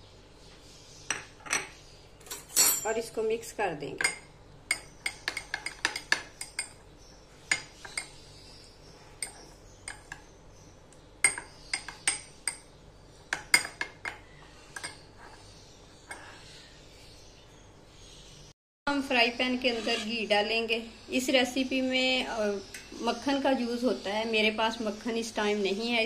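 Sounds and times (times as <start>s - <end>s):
metal spoon clinking against glass: 2.3s - 3.0s.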